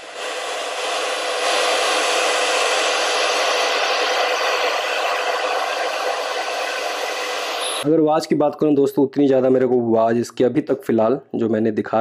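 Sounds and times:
loud radio static hiss: 0:00.0 - 0:07.9.

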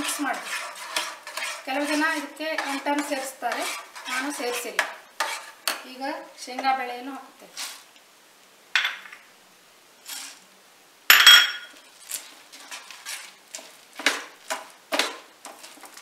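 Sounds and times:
metal spoon scraping frying pan: 0:00.0 - 0:05.9, 0:11.6 - 0:16.0.

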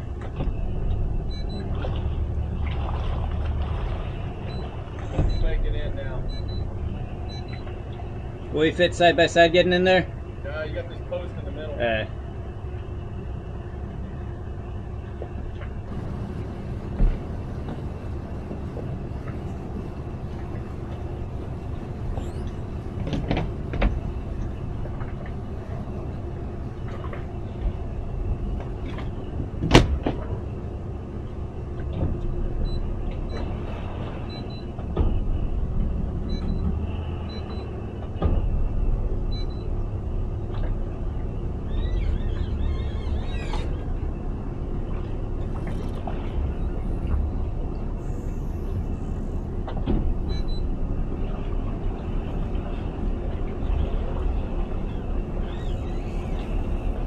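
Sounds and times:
outboard motors running: 0:00.0 - 0:57.0
knocks and clunks: 0:04.5 - 0:06.6, 0:26.8 - 0:30.4, 0:31.7 - 0:39.6, 0:49.6 - 0:50.6.

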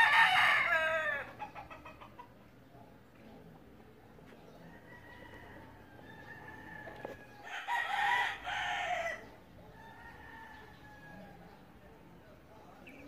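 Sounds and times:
rooster crowing: 0:00.0 - 0:01.4, 0:04.7 - 0:11.4.

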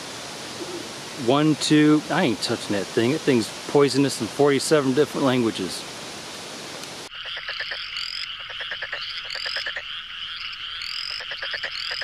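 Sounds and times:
frogs pulsed trills: 0:07.1 - 0:12.0
high-pitched frog chorus: 0:07.1 - 0:12.0.

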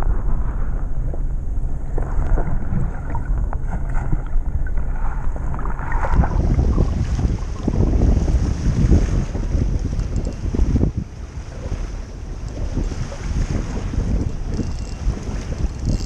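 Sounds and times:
underwater rumble: 0:00.0 - 0:16.0
wind on microphone: 0:00.0 - 0:16.0
water splashing: 0:01.8 - 0:16.0
underwater clicks: 0:09.1 - 0:11.0, 0:12.4 - 0:16.0.

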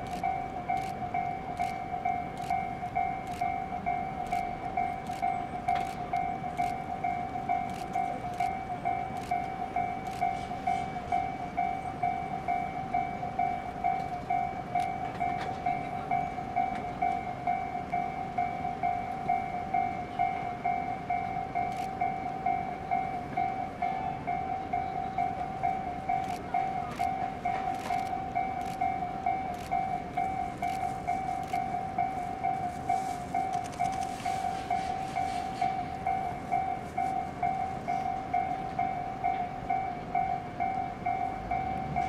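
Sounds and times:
level crossing warning bell: 0:00.0 - 0:42.0.

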